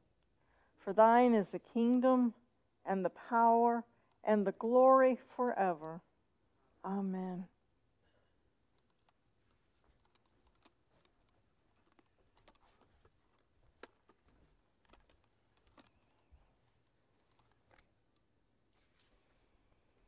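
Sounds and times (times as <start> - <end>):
faint clicks and taps: 8.7 - 18.3.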